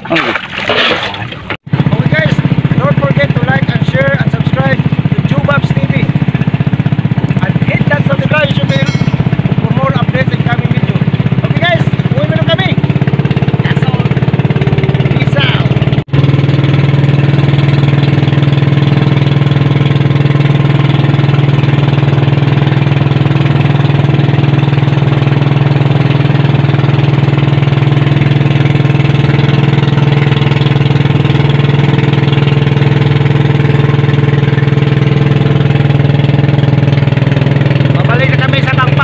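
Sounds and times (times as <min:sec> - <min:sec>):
boat engine running: 0:00.0 - 0:39.0.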